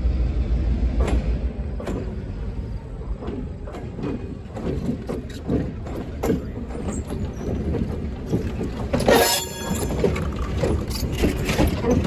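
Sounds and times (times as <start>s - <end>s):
train rolling past rumbling: 0.0s - 12.0s
wheel clicks and creaks: 3.1s - 12.0s.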